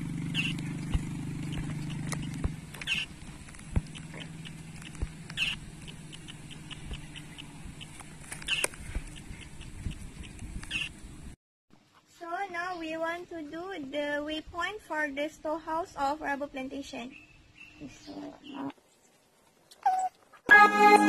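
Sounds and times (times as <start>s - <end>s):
small animal chirping: 0.2s - 11.1s, 19.7s - 20.3s.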